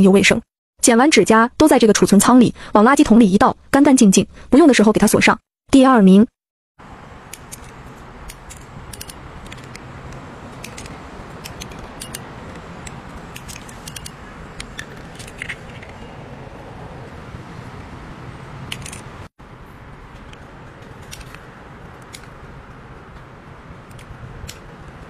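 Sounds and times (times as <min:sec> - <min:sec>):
shears snipping plastic: 0:07.3 - 0:16.0.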